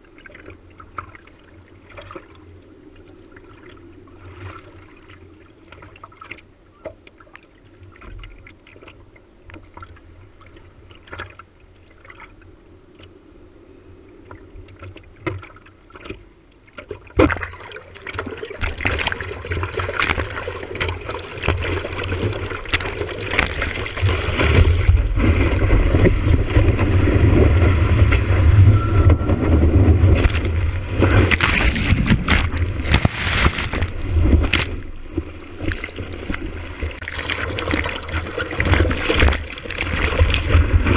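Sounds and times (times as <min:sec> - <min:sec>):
water lapping against surfboard: 0:00.0 - 0:13.2, 0:14.1 - 0:40.9
paddling splashes: 0:14.8 - 0:40.9
churning whitewater: 0:17.1 - 0:40.9.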